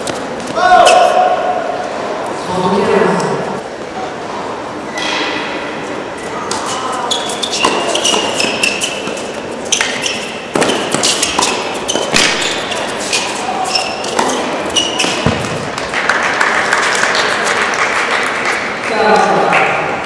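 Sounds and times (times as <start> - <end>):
shoes squeaking on court: 6.4 - 15.9
tennis ball hits echoing: 9.8 - 12.7, 14.1 - 15.9.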